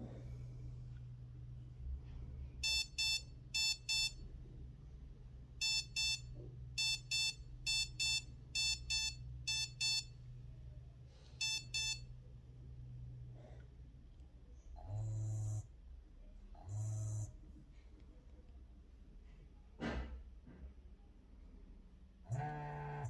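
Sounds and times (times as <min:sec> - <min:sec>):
high-pitched double beeps: 0:06.8 - 0:10.1.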